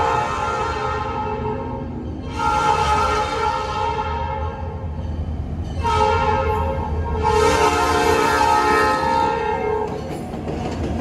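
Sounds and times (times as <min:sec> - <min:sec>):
locomotive air horn blast: 0:00.0 - 0:04.7, 0:05.8 - 0:09.9.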